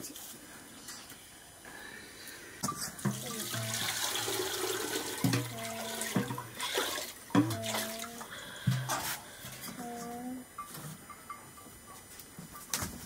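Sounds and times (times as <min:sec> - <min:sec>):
water pouring into metal pot: 0:03.0 - 0:08.2.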